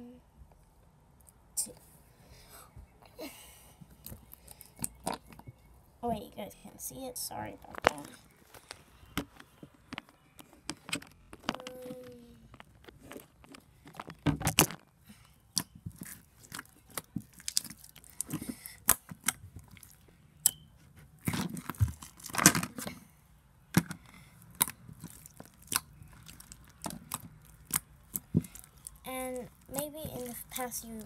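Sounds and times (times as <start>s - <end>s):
slime squished and pulled: 15.4s - 22.9s, 23.7s - 31.0s.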